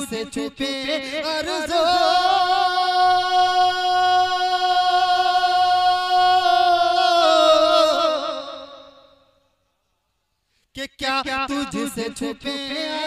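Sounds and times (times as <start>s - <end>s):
man singing unaccompanied: 0.0s - 9.2s, 10.8s - 13.0s.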